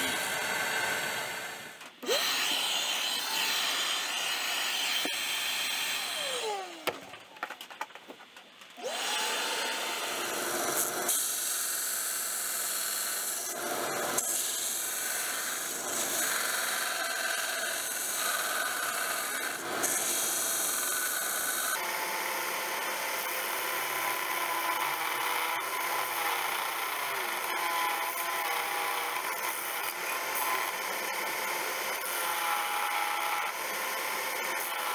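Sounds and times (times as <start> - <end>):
belt sander grinding steel: 8.8 - 34.9.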